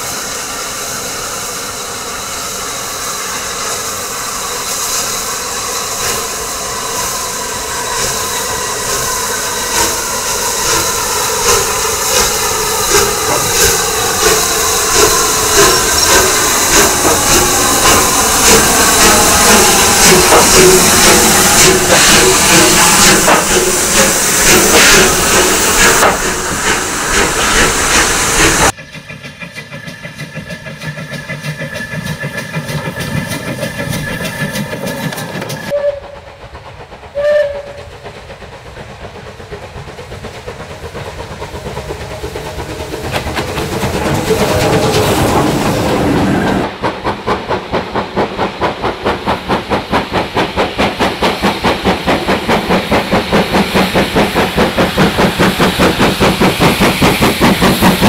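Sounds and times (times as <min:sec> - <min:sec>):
loud hiss of steam: 0:00.0 - 0:58.0
steam locomotive exhaust beats: 0:00.0 - 0:58.0
locomotive whistle toot: 0:35.6 - 0:36.3, 0:37.2 - 0:37.9.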